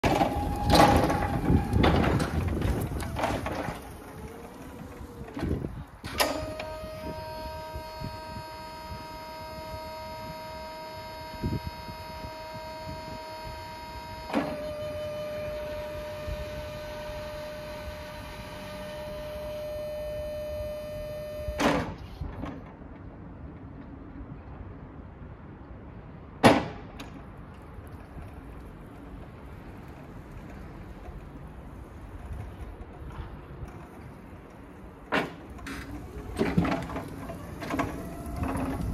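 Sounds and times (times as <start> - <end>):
machine clunk: 0.0 - 7.0, 32.2 - 38.9
hydraulic pump whining: 0.0 - 22.7, 29.6 - 38.9.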